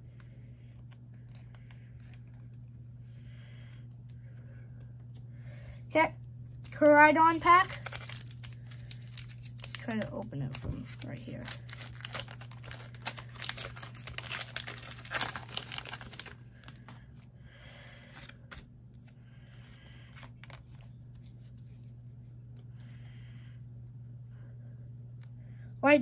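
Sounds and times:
low hum: 0:00.0 - 0:26.0
foil wrapper tearing and crinkling: 0:06.6 - 0:17.0.

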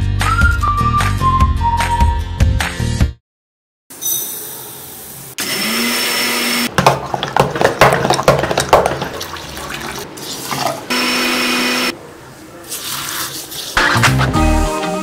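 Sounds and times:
mixer grinder humming: 0:05.4 - 0:08.4, 0:10.6 - 0:11.9
porridge sloshing while stirred: 0:06.8 - 0:10.9.

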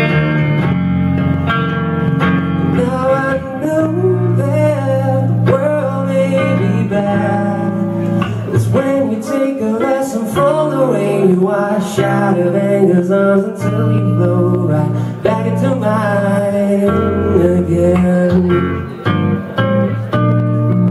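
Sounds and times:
man singing: 0:02.6 - 0:19.1.

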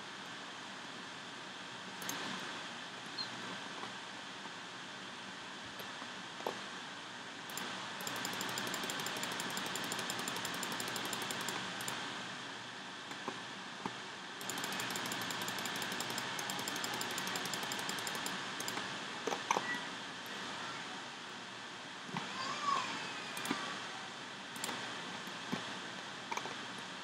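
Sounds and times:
steady background hiss: 0:00.0 - 0:27.0
fast faint ticking: 0:07.5 - 0:12.0, 0:14.4 - 0:18.8.

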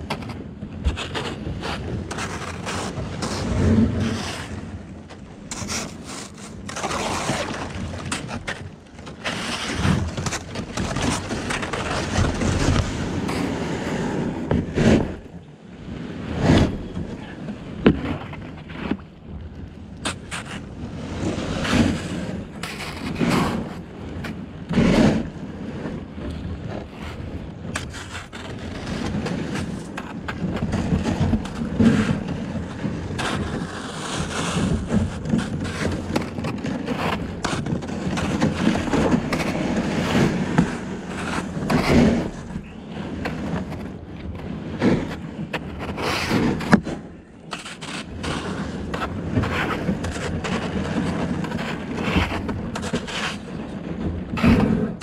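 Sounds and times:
kayak hull scraping over ice: 0:00.0 - 0:55.0
ice cracking: 0:05.5 - 0:12.9.

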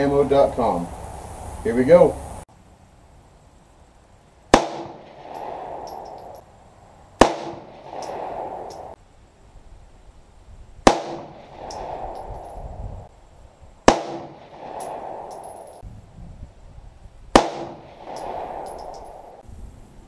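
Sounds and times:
pistol shots with echo: 0:04.5 - 0:06.4, 0:07.2 - 0:08.9, 0:10.8 - 0:12.5, 0:13.8 - 0:15.8, 0:17.3 - 0:19.4.

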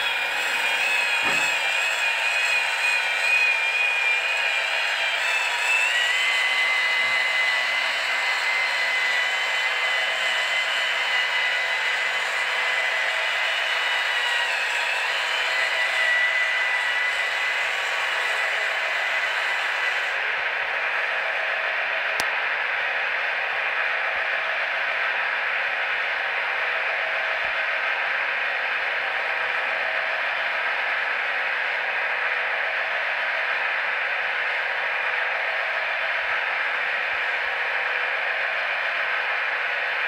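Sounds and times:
electric motor whine: 0:00.0 - 0:22.7.

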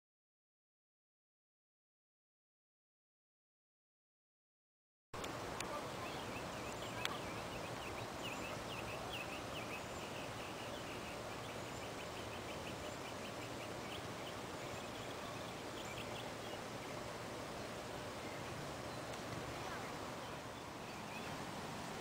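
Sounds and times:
outdoor background hiss: 0:05.2 - 0:22.0
small bird singing: 0:05.6 - 0:21.4.

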